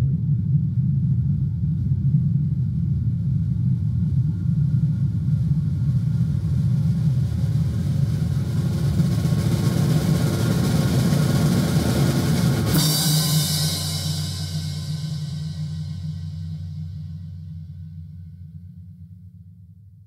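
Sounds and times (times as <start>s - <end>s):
low drum roll: 0.0s - 19.5s
hissing cymbal roll: 6.9s - 18.0s
cymbal crash: 8.2s - 18.4s
low orchestral chord: 9.4s - 18.6s.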